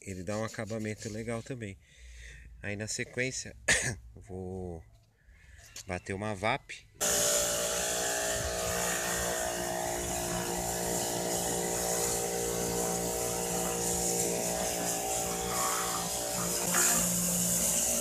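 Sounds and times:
pressure washer motor hum: 0:07.0 - 0:18.0
water jet hissing: 0:07.0 - 0:18.0.

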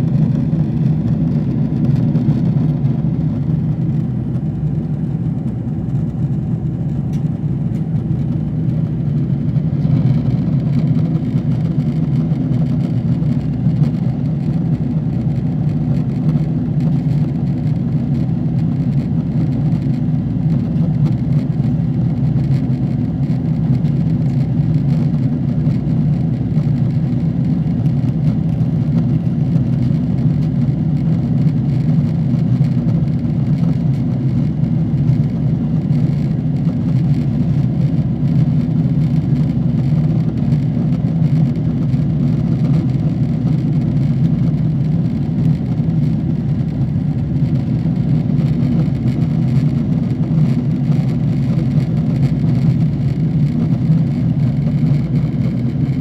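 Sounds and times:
jet engine drone in cabin: 0:00.0 - 0:56.0.

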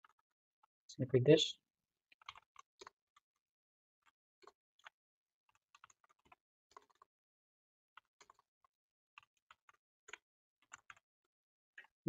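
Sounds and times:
keyboard typing: 0:10.6 - 0:11.0.

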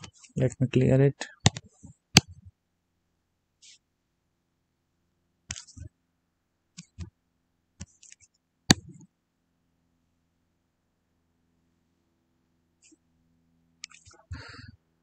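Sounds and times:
faint steady hum: 0:00.0 - 0:15.0
pointing device clicks and taps: 0:01.4 - 0:01.6.

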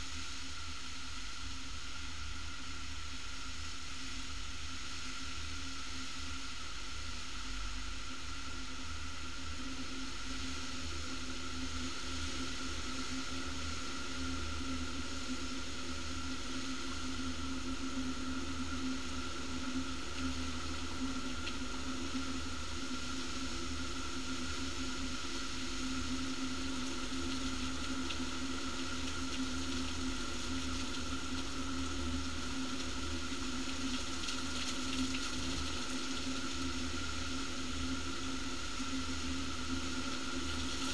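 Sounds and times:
faint ticks: 0:21.3 - 0:21.6, 0:26.8 - 0:28.3.

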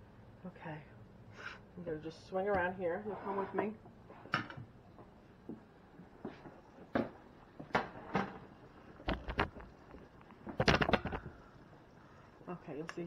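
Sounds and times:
kitchen knocks and clunks: 0:06.3 - 0:08.5.

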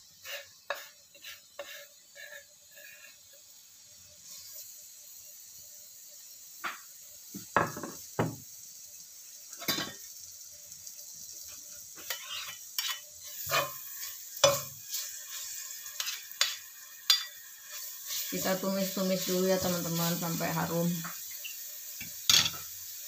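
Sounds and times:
spatula scraping a pan: 0:00.0 - 0:03.5, 0:11.4 - 0:22.7
paste sizzling in hot oil: 0:00.0 - 0:23.0.

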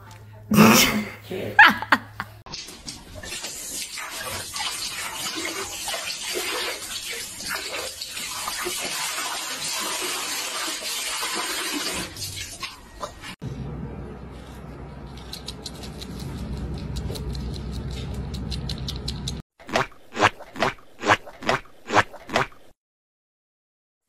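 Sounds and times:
water running from a tap: 0:02.6 - 0:13.4.

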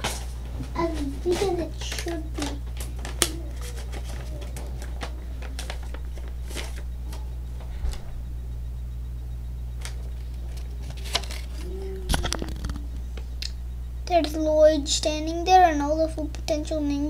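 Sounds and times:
paper rustling: 0:00.0 - 0:08.2, 0:09.8 - 0:13.3
low electrical hum: 0:00.0 - 0:17.0.

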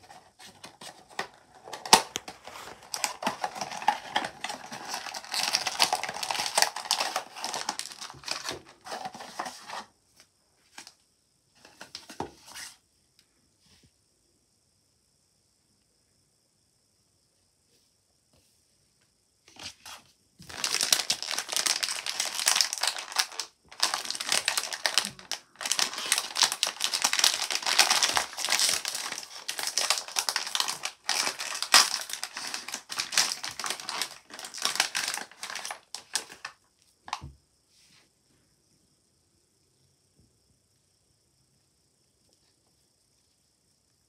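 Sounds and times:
plastic wrapping crinkling: 0:00.0 - 0:09.8, 0:19.9 - 0:36.5.

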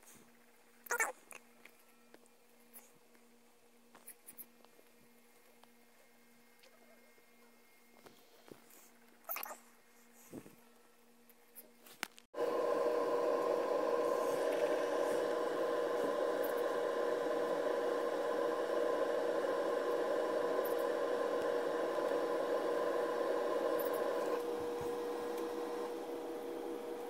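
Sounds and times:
electric hum: 0:12.4 - 0:27.0.

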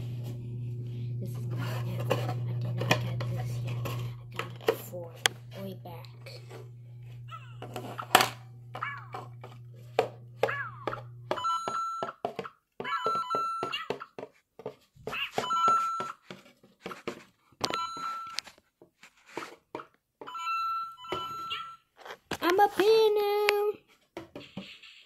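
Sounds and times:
low hum: 0:00.0 - 0:11.4
toy electronic beeps and chirps: 0:12.9 - 0:14.0, 0:20.4 - 0:21.9.

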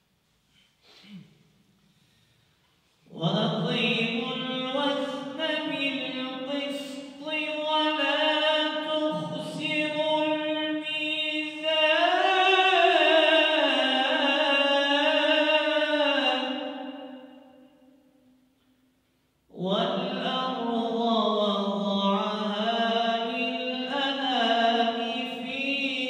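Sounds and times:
man reciting melodically: 0:03.0 - 0:17.3, 0:19.5 - 0:26.0.

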